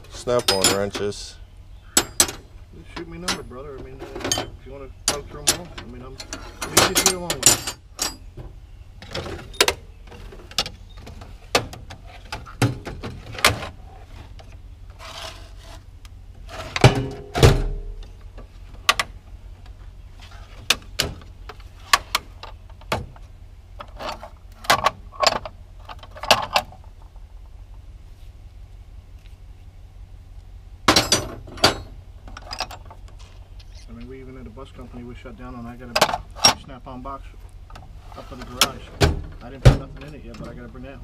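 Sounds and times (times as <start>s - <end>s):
wrenches clinking together: 0.2s - 1.1s, 4.1s - 8.2s.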